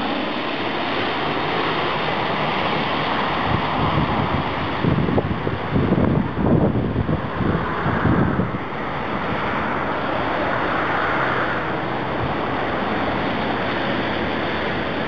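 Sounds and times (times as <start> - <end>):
jet airliner engines rushing: 0.0 - 15.0
wind buffeting microphone: 0.0 - 15.0.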